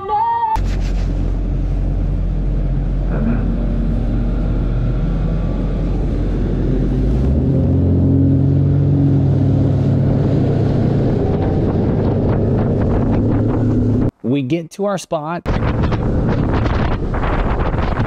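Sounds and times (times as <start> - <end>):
outboard motor running fast: 0.7 - 14.1.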